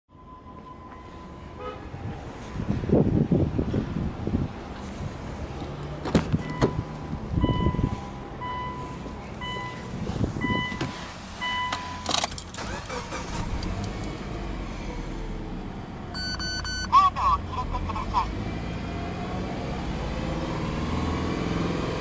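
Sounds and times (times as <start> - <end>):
dashboard warning chime beeping: 6.4 - 13.1, 16.1 - 17.3
ignition clatter: 11.7 - 14.2.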